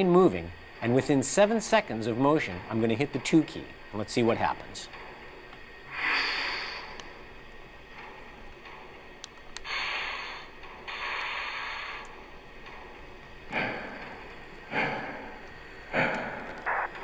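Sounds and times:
steam locomotive hisses: 5.9 - 7.0, 9.6 - 12.1
steam locomotive exhaust chuffs: 9.5 - 16.8.

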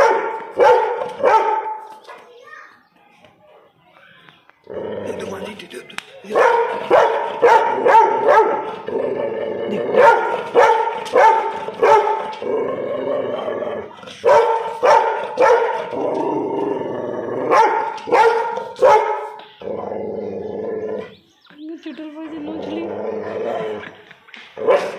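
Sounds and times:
dog barking: 0.0 - 1.9, 6.3 - 8.7, 9.9 - 12.4, 14.2 - 16.0, 17.5 - 19.4, 24.6 - 24.9.

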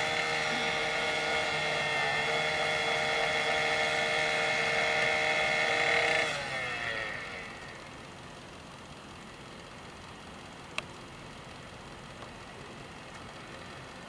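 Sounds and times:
power saw engine revving: 0.0 - 8.0.

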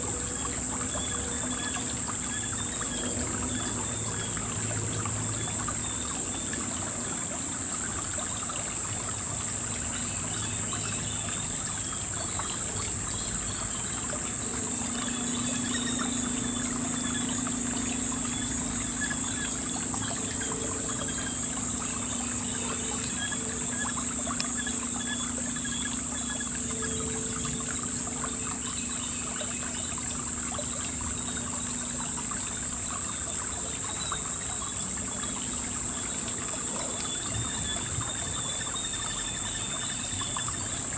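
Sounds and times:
insects droning: 0.0 - 40.9
river water trickling over stones: 0.0 - 40.9.

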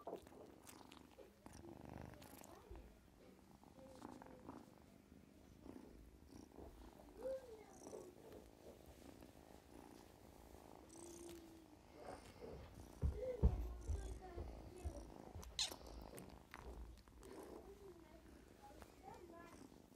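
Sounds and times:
kitten mewing: 15.4 - 16.0.

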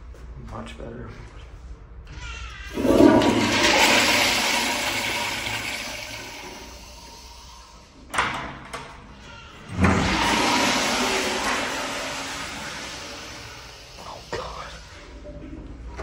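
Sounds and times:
toilet flushing: 2.7 - 8.1, 9.6 - 16.0.

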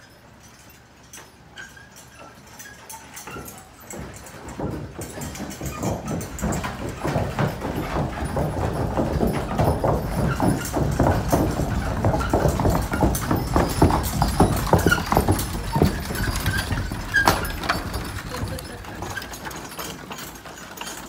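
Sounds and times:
rapid clattering knocks: 3.2 - 21.0.

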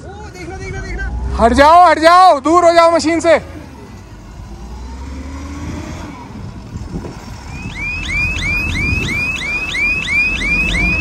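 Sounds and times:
diesel engine running: 0.0 - 11.0
back-up alarm chirping: 7.4 - 11.0.

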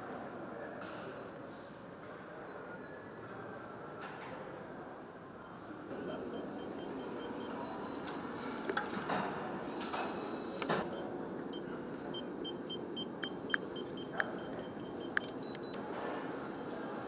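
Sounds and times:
steady workshop hum: 5.2 - 17.0
faint high beeping: 5.9 - 8.2, 10.8 - 15.8
metallic tool clicks and knocks: 8.6 - 9.2.

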